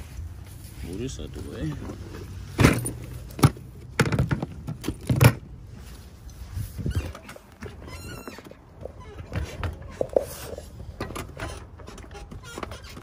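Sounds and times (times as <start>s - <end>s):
objects knocking and clunking: 1.7s - 5.6s.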